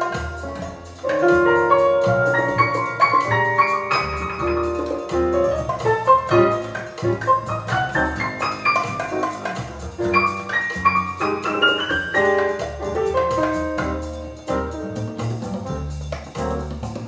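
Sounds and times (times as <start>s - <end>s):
double bass: 0.0s - 17.0s
drums: 0.0s - 17.0s
piano notes: 0.0s - 17.0s.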